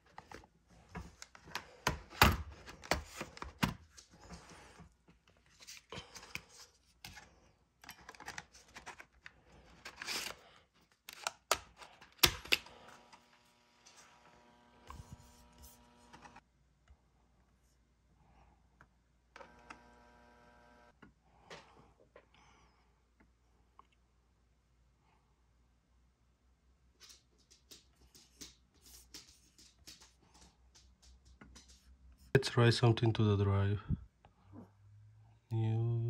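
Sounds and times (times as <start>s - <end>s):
plastic clicks and handling: 7.8s - 12.8s
floppy drive spinning hum: 14.3s - 16.4s.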